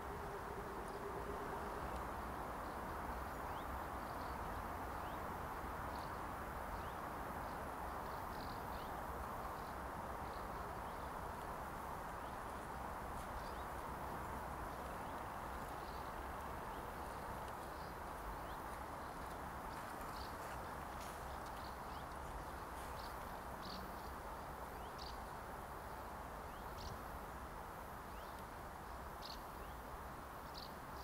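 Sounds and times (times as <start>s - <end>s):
outdoor background hiss: 0.0s - 31.0s
small birds chirping: 5.9s - 25.4s.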